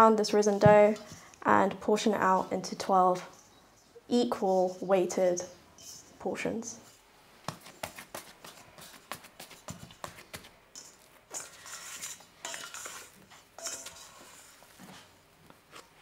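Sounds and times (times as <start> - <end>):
scraper scraping bowl: 11.3 - 15.1.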